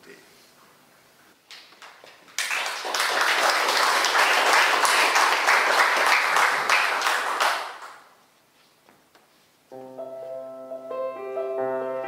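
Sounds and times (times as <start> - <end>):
audience applauding: 1.8 - 8.1.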